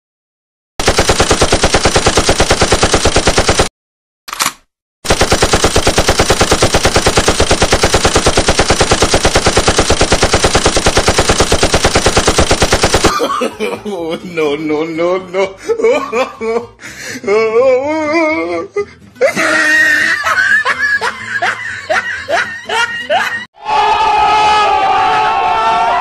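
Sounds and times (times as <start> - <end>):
machine-gun fire: 0.8 - 3.7, 4.3 - 13.2.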